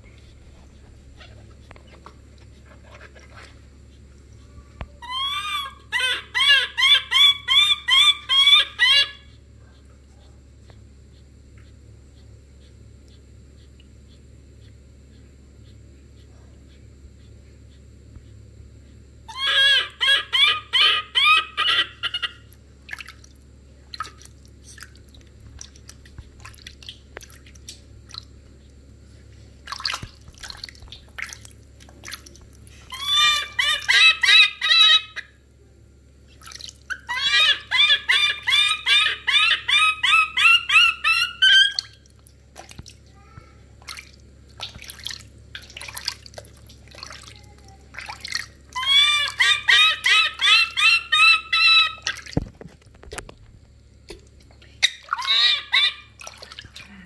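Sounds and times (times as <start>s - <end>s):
baby monkey shrill crying: 5.0s - 9.4s, 19.3s - 22.4s, 32.9s - 35.3s, 36.9s - 42.0s, 48.7s - 52.3s, 54.8s - 56.2s
water splashing and dripping: 22.8s - 28.3s, 29.6s - 32.6s, 36.4s - 36.9s, 41.8s - 43.1s, 43.8s - 48.7s, 52.0s - 52.5s, 56.2s - 57.0s.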